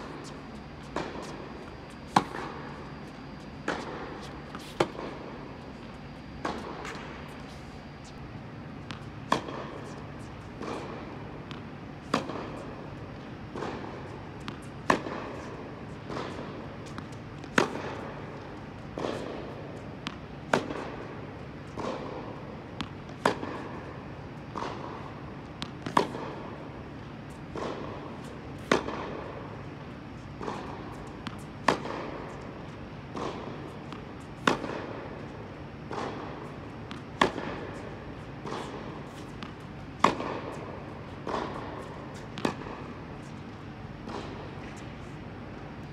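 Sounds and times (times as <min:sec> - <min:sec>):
tennis racket hitting ball: 0:00.0 - 0:45.9
ball bounces: 0:35.9 - 0:43.2.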